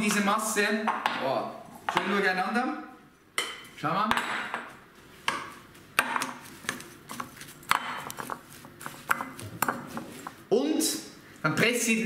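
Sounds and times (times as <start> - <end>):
spoon stirring sticky mixture: 6.2 - 10.4.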